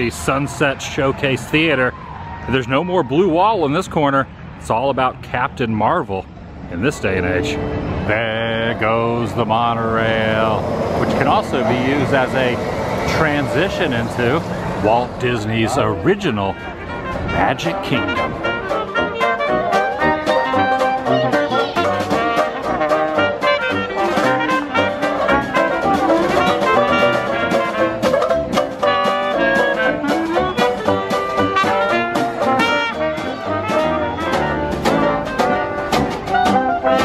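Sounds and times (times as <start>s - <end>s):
jazz band playing: 7.4s - 37.0s.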